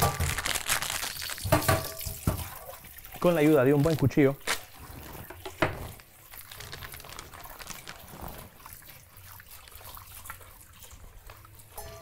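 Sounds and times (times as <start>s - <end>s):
faint trickle of water: 1.2s - 12.0s
kitchen utensils clattering: 1.4s - 2.6s, 11.8s - 12.0s.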